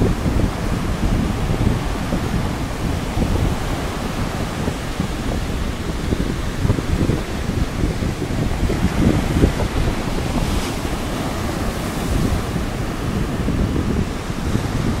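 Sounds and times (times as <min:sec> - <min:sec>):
surf breaking on beach: 0:00.0 - 0:15.0
wind rumbling on microphone: 0:00.0 - 0:15.0.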